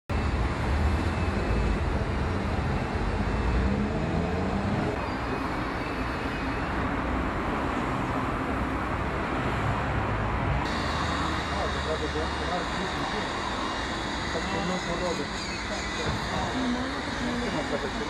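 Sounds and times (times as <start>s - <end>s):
street traffic rumble: 0.1s - 18.0s
vehicle engine gliding: 0.2s - 6.0s.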